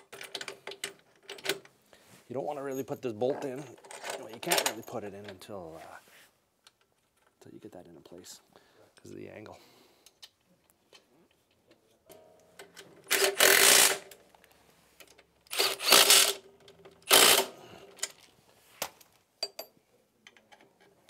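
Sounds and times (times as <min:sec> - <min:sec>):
metal parts clicking: 0:02.7 - 0:05.0, 0:11.4 - 0:14.3
power tool driving a bolt: 0:13.1 - 0:14.2, 0:15.5 - 0:16.4, 0:17.0 - 0:18.2.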